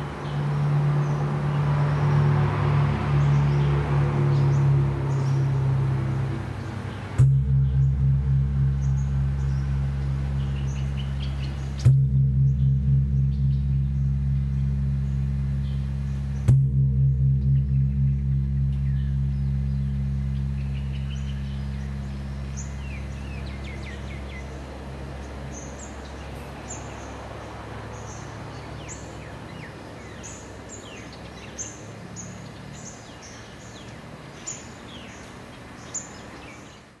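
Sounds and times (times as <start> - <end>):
small birds chirping: 0.0 - 2.3, 2.9 - 37.0
deep gong hum: 0.4 - 25.0.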